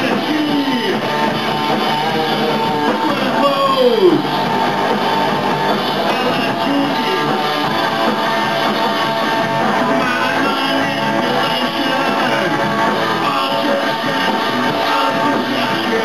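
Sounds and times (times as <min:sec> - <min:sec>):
electric guitar: 0:00.0 - 0:16.0
rock band playing: 0:00.0 - 0:16.0.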